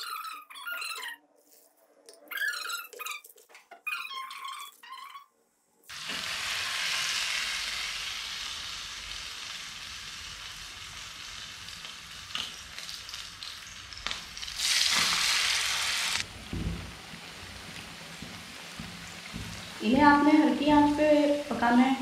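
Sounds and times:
oil sizzling in a frying pan: 5.9s - 22.0s.

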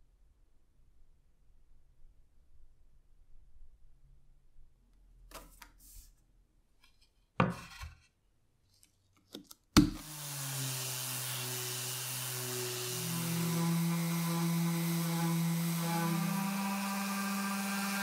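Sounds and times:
orbital sander running: 10.0s - 18.0s.

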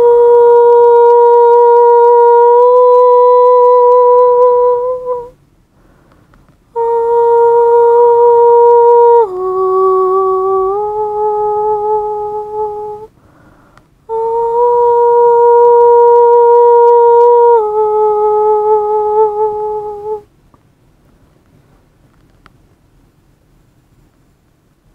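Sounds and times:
person humming: 0.0s - 5.4s, 6.7s - 13.4s, 14.0s - 20.3s.

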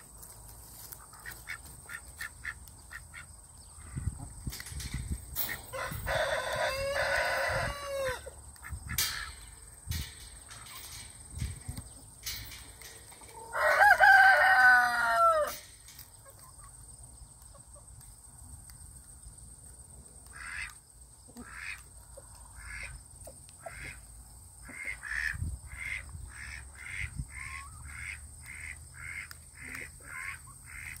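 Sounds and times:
rooster crowing: 5.7s - 8.4s, 13.4s - 15.6s
chicken clucking: 10.3s - 18.0s.

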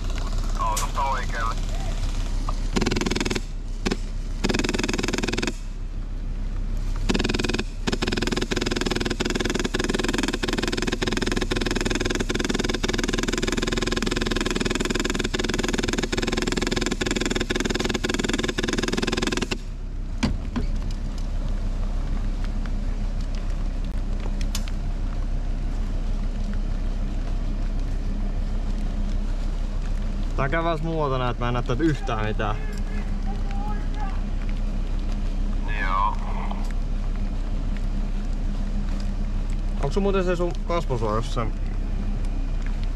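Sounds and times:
vehicle engine and road rumble: 0.0s - 42.9s
sharp repeating click: 2.8s - 5.7s, 7.1s - 19.6s.

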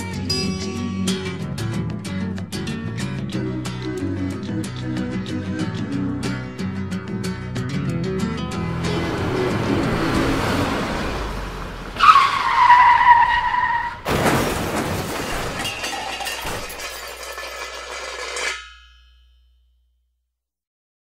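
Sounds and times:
tyres screeching: 8.5s - 14.1s
car crash with breaking debris: 10.4s - 18.4s.

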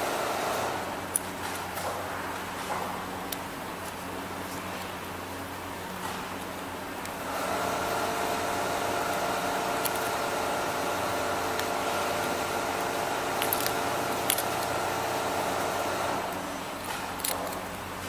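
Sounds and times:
machine hum with fixed tones: 0.0s - 18.0s
metal clamps clicking: 9.1s - 10.3s, 11.5s - 14.8s, 16.8s - 17.7s.

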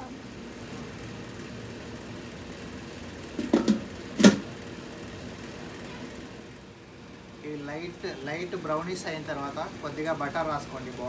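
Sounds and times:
metal grill lid knocking: 3.4s - 4.5s
metal lid clanking shut: 3.4s - 4.5s.

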